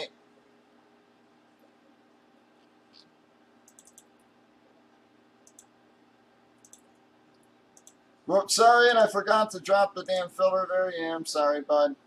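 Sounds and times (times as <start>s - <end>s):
faint mouse and keyboard clicks: 2.6s - 4.3s, 5.4s - 5.7s, 6.6s - 8.0s.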